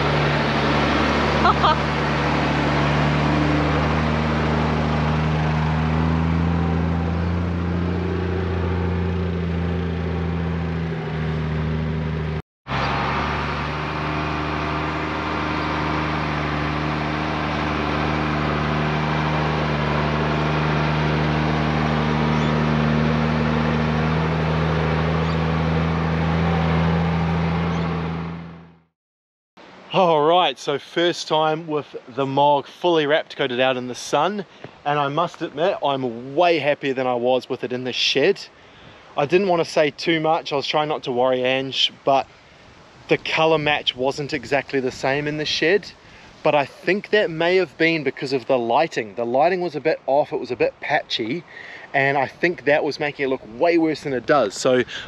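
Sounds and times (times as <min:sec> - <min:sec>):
diesel engine running: 0:00.0 - 0:28.9, 0:41.8 - 0:55.0.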